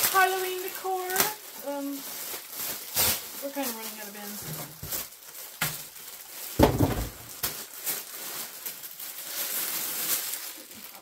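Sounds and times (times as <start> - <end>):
plastic bag rustling and crinkling: 0.0 - 11.0
loud thump: 6.6 - 7.4.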